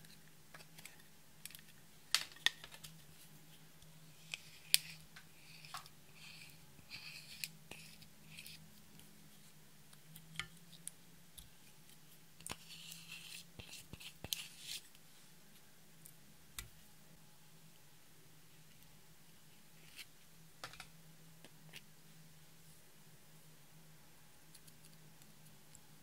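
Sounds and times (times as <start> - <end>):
spatula scraping eyeshadow: 4.2 - 8.7, 12.4 - 14.8.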